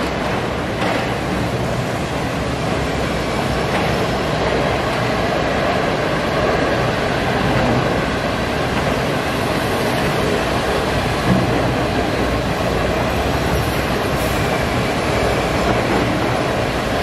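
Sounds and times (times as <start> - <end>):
train wheels rolling on rails: 0.0 - 17.0.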